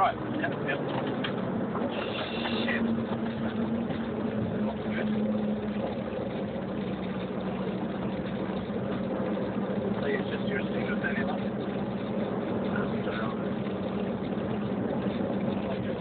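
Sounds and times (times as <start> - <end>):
car engine hum: 0.0 - 16.0
road noise inside car: 0.0 - 16.0.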